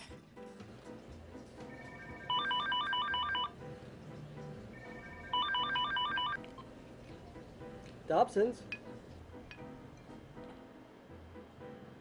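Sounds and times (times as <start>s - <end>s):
electronic telephone ringing: 1.7s - 3.6s, 4.8s - 6.4s.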